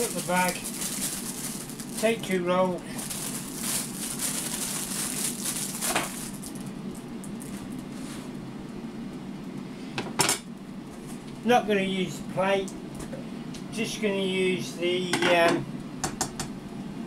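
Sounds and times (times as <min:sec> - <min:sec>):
plastic bag crinkling: 0:00.0 - 0:07.9
air fryer humming: 0:00.0 - 0:17.0.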